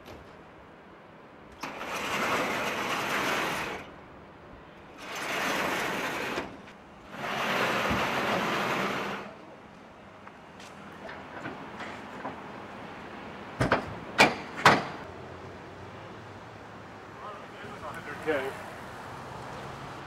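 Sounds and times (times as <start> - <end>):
metal sliding door rumbling: 1.6 - 3.9, 4.9 - 9.4.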